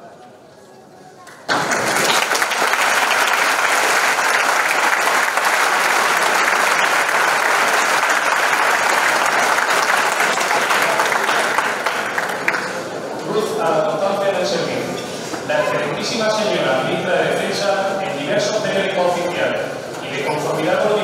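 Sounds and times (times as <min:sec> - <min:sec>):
audience applause: 0:01.4 - 0:13.1.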